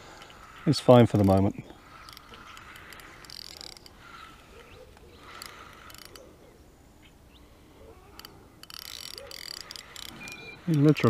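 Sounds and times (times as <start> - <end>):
fishing reel clicking: 0.1 - 4.3, 4.9 - 6.3, 8.1 - 11.0.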